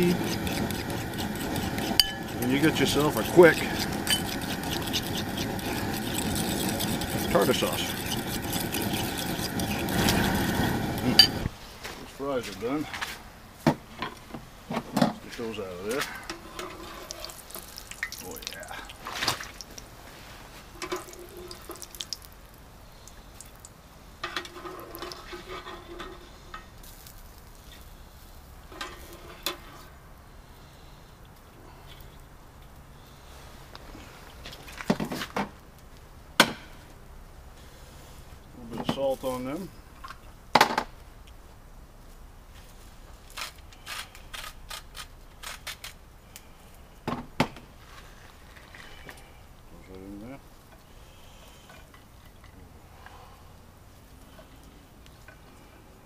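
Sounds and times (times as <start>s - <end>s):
fries sizzling in hot oil: 0.0s - 11.5s, 15.7s - 25.9s
metal skimmer scraping pot: 0.0s - 11.5s, 15.8s - 19.7s, 20.8s - 22.1s, 24.2s - 26.5s.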